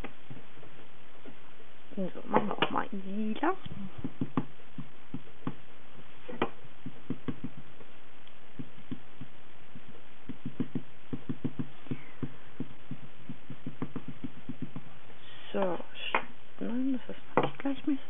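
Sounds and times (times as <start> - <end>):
ink pad tapping: 4.0 - 5.6, 6.3 - 14.9.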